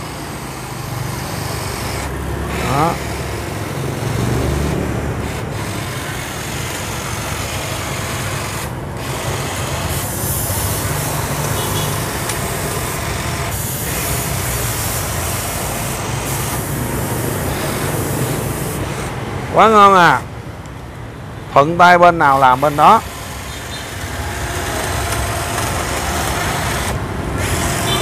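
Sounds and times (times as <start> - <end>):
hedge trimmer buzzing: 0.0 - 19.3, 22.2 - 28.0.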